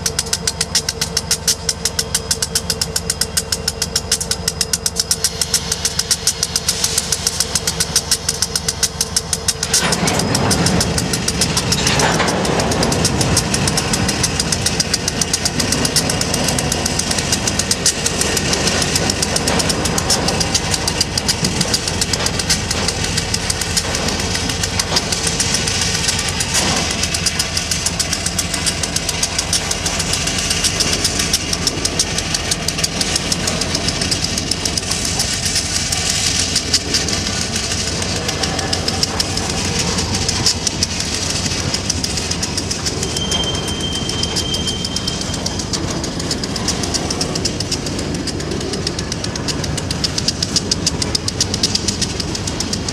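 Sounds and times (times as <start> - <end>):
diesel locomotive engines beating: 0.0 - 52.9
train wheels rumbling: 0.0 - 52.9.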